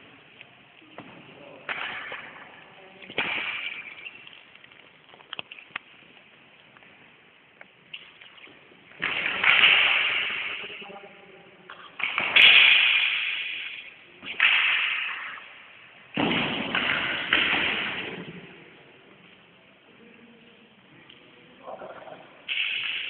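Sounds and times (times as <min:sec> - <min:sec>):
swords clashing: 0:03.1 - 0:04.1, 0:12.0 - 0:15.5.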